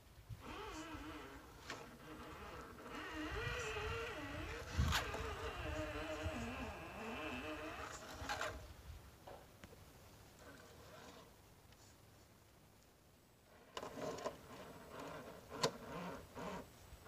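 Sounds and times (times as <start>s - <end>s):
small electric motor whining: 0.4s - 8.6s, 13.8s - 16.7s.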